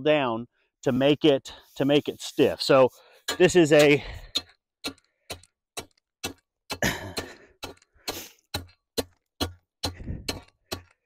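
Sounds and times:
tamping bar thudding on gravel: 2.4s - 11.0s.

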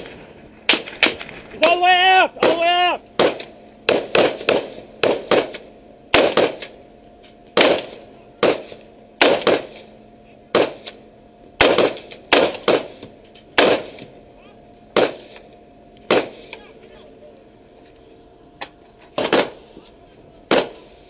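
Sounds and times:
rifle shots with echo: 0.0s - 1.5s, 2.4s - 6.8s, 7.5s - 11.0s, 11.6s - 14.1s, 14.9s - 16.7s, 19.2s - 19.6s, 20.4s - 21.0s
faint steady hum: 0.0s - 21.0s.

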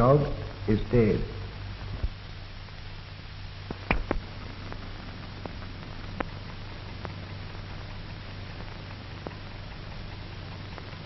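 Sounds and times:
film soundtrack hiss and hum: 0.0s - 11.0s
clicks and pops: 3.6s - 9.9s.

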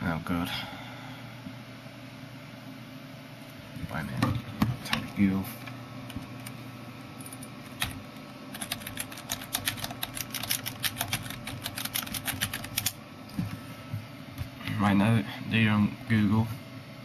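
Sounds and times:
computer keyboard key clicks: 8.6s - 13.0s.

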